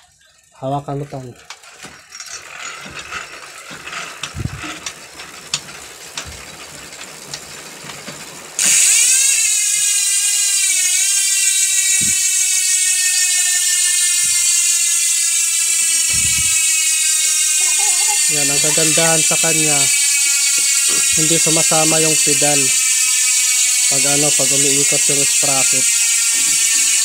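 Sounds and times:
bicycle hub clicks: 0.8s - 27.0s
freehub ratcheting buzz: 1.3s - 27.0s.

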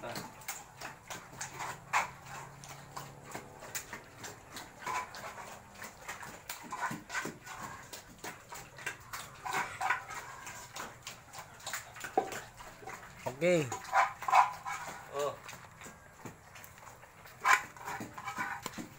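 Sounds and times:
pig grunting: 0.0s - 18.9s.

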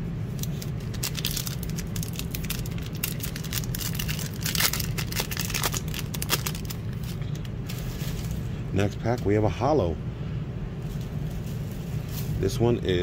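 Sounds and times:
steady low hum: 0.0s - 13.0s
foil pack crinkling and tearing: 0.3s - 8.4s.

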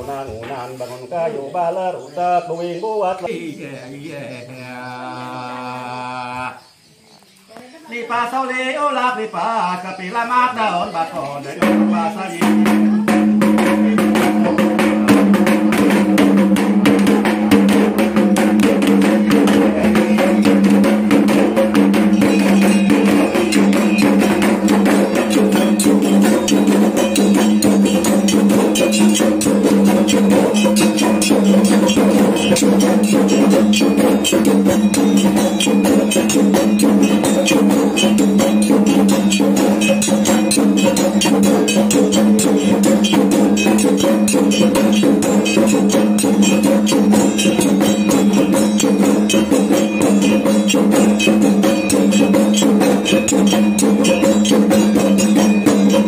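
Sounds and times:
hand drums beating fast: 11.5s - 56.0s
steady ringing tone: 19.9s - 56.0s.

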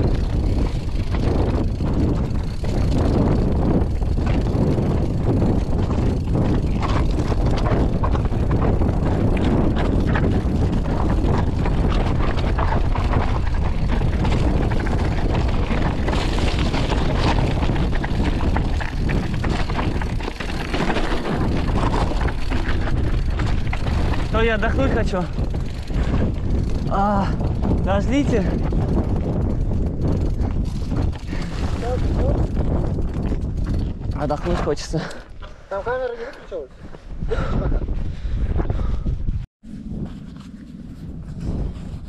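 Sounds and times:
bike clattering over bumps: 0.0s - 35.6s
wind rush on microphone: 0.0s - 42.0s.

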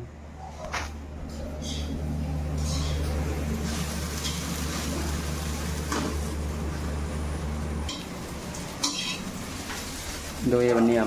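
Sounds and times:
low electrical hum: 0.0s - 11.0s
eggs sizzling in a pan: 2.5s - 10.7s.

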